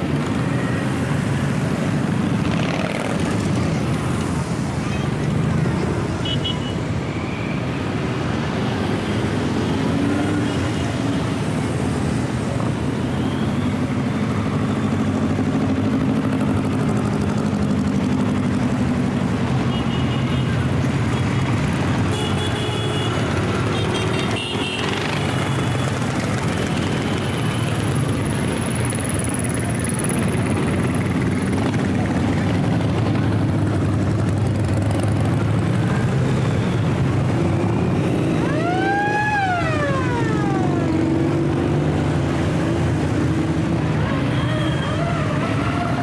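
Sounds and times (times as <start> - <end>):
motorcycles riding past: 0.0 - 6.2, 13.7 - 19.5, 23.1 - 46.0.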